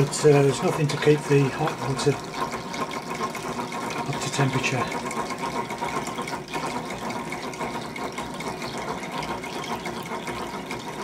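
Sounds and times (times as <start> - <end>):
spring churning and spattering water: 0.0 - 11.0.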